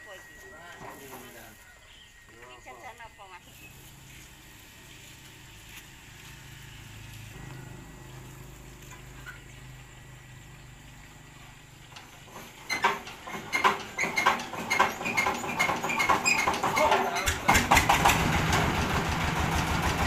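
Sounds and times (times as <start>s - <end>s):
diesel engine knocking clatter: 7.4s - 20.0s.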